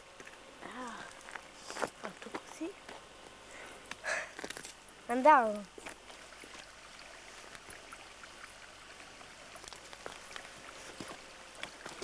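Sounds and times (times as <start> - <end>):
small stream trickling over stones: 3.8 - 12.0.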